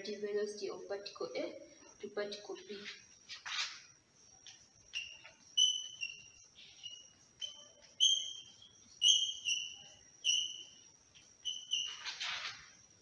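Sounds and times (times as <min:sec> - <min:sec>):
chalk squeaking on blackboard: 0:03.3 - 0:03.9, 0:04.9 - 0:12.9.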